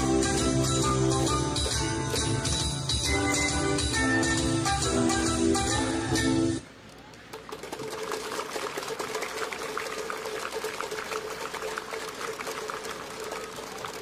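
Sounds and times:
spectators clapping: 7.0s - 14.0s.

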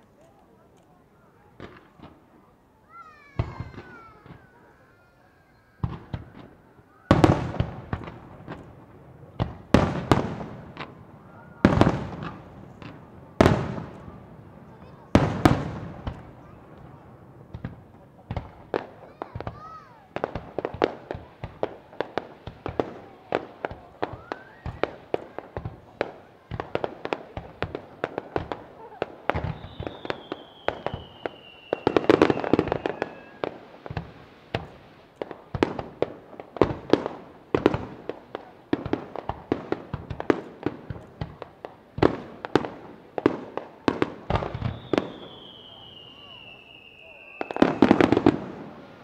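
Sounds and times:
fireworks bangs: 1.2s - 49.0s
long falling whistle: 24.2s - 24.8s, 29.6s - 33.4s, 44.6s - 47.9s.

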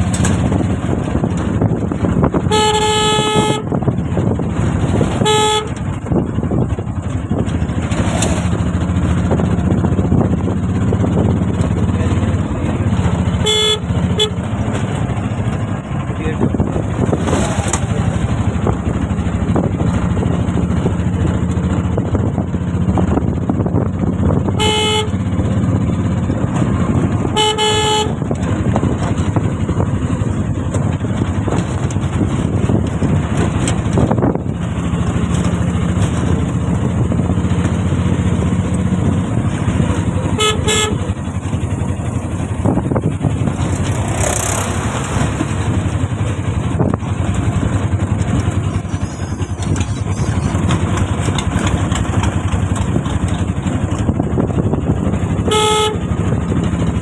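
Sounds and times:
road noise: 0.0s - 57.0s
vehicle engine running: 0.0s - 57.0s
car horn honking: 2.3s - 4.0s, 5.0s - 5.9s, 13.2s - 15.0s, 24.5s - 25.4s, 27.2s - 28.3s, 40.2s - 41.2s, 55.4s - 56.3s.

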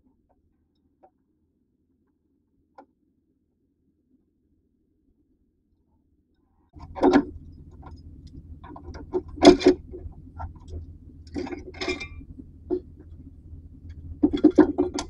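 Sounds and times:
low steady hum: 6.8s - 15.0s
metal tools clinking and clanking: 8.6s - 15.0s.

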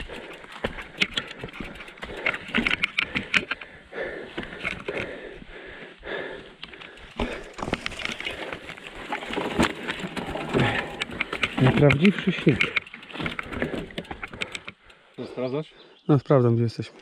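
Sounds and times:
bicycle clicking and rattling: 0.0s - 15.2s
footsteps on rough ground: 6.6s - 14.0s.

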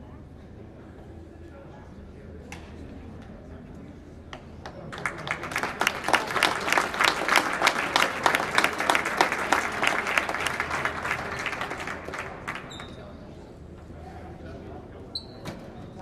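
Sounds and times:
small crowd applauding: 4.6s - 13.4s.

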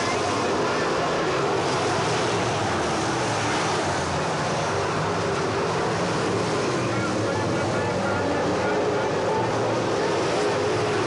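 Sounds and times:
race car engines droning: 0.0s - 11.0s.

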